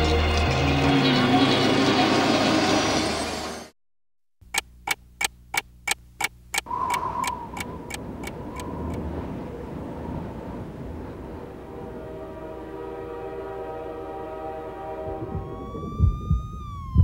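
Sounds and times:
sharp even ticking: 4.4s - 9.0s, 15.4s - 17.0s.

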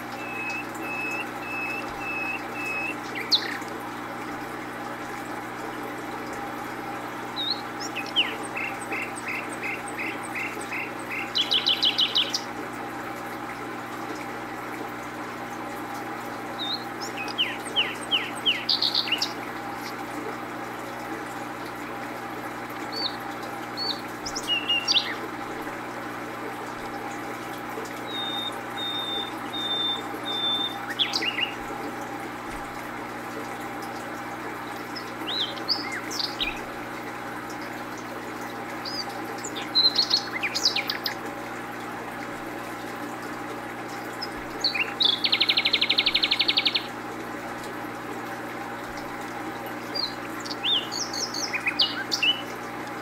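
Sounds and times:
small bird chirping and trilling: 0.0s - 3.7s, 7.4s - 12.5s, 16.6s - 20.0s, 22.9s - 23.2s, 23.8s - 25.2s, 28.0s - 31.6s, 34.6s - 36.7s, 38.8s - 41.2s, 44.2s - 46.9s, 49.9s - 52.6s
steady background hum: 0.0s - 53.0s.

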